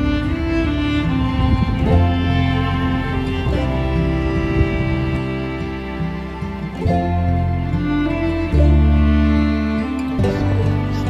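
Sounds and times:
background music with held notes: 0.0 - 11.0.

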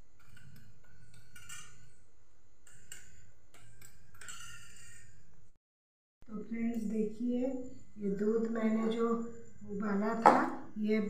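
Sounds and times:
metal utensils clinking on cookware: 0.2 - 2.0, 2.6 - 5.2.

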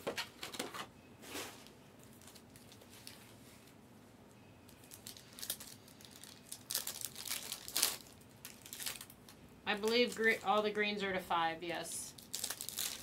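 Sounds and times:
foil wrappers crinkling and tearing: 2.0 - 3.3, 4.7 - 10.8, 12.1 - 13.0.

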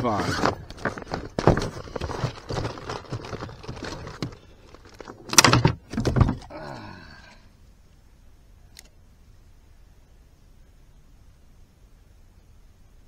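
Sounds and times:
plastic bag rustling: 0.0 - 6.5
fishing gear clattering: 0.0 - 6.8.

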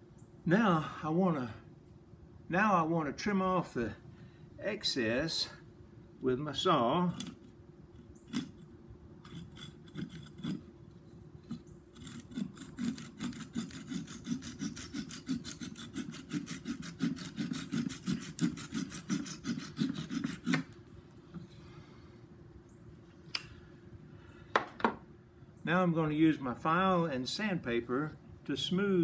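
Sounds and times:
hand saw cutting wood: 9.2 - 10.7, 11.4 - 20.7.

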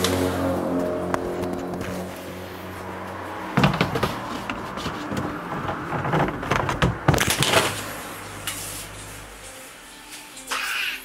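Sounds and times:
plastic knocking and clattering: 3.5 - 7.8.

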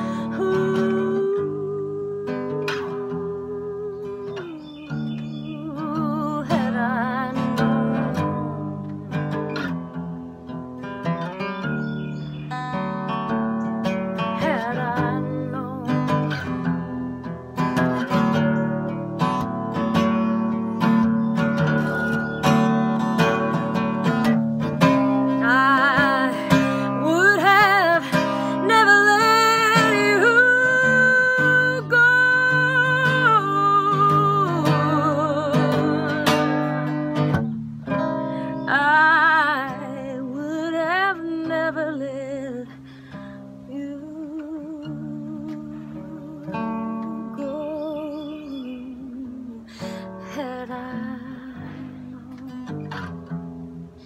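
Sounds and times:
woman singing with vibrato: 0.0 - 8.8, 14.2 - 16.8, 24.8 - 53.2
acoustic guitar strumming: 0.0 - 54.0.

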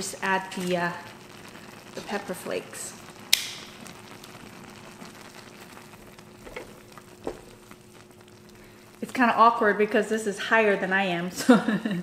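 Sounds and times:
broth simmering with hiss: 0.0 - 12.0.

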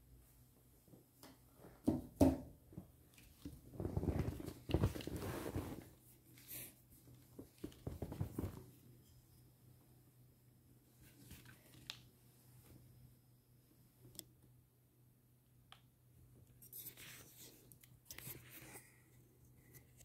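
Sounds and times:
rustling: 3.1 - 8.9.

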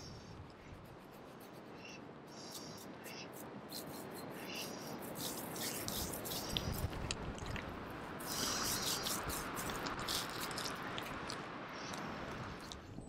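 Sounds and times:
hand rubbing balm into hair: 2.4 - 7.1, 8.2 - 11.1.

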